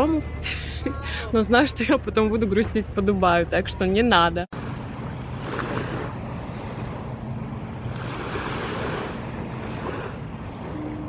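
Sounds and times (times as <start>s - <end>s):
boat engine hum: 0.0s - 11.0s
rushing water: 4.5s - 11.0s.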